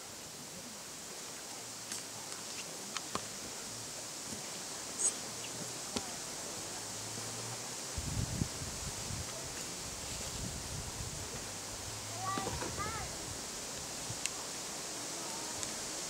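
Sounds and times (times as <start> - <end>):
steady hiss: 0.0 - 16.0
wind buffeting microphone: 7.9 - 11.5.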